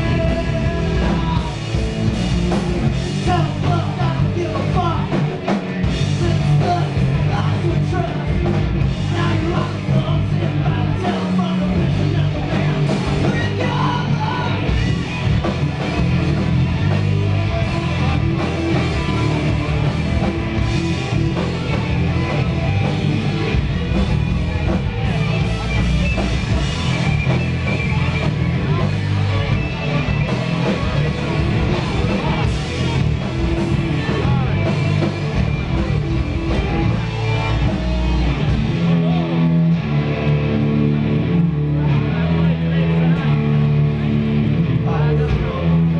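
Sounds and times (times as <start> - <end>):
bass guitar: 0.0 - 45.9
distorted electric guitars: 0.0 - 45.9
drum kit: 0.0 - 45.9.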